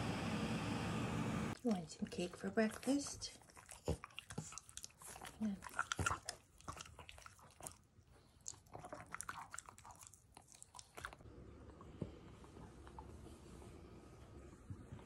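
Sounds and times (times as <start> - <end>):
dog chewing and lip-smacking: 1.6 - 13.3.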